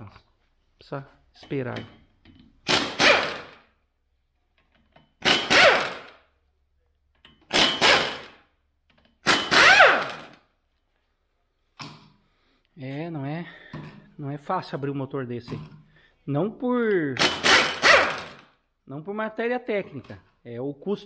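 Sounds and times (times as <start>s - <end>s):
impact wrench bursts: 2.6s - 3.7s, 5.2s - 6.3s, 7.4s - 8.5s, 9.2s - 10.4s, 17.2s - 18.5s.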